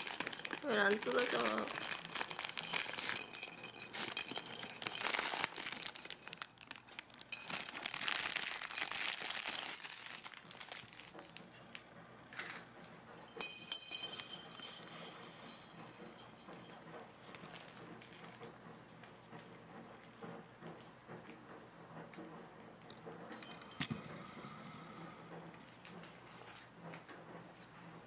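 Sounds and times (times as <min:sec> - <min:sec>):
plastic packaging crinkling and tearing: 0:00.0 - 0:11.5.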